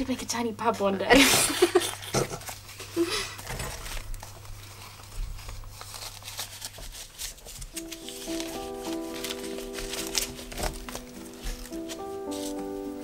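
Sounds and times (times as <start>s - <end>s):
old newspaper rustling and crackling: 0.0s - 13.0s
music: 7.6s - 13.0s.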